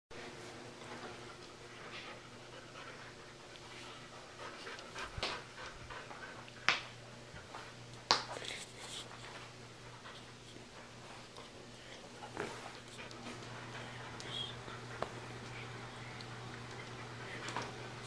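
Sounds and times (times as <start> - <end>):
dog panting: 1.1 - 7.8, 8.5 - 18.0.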